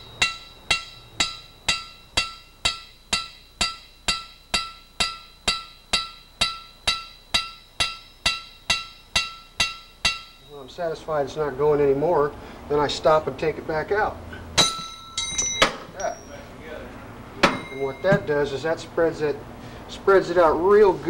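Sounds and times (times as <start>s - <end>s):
hammer tapping on metal: 0.0s - 10.5s, 14.6s - 16.3s, 17.4s - 18.3s.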